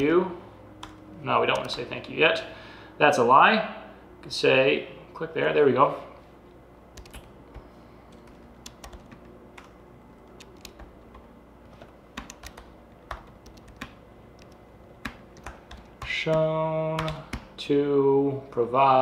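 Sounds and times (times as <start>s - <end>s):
keyboard typing: 0.8s - 1.8s, 6.9s - 17.5s.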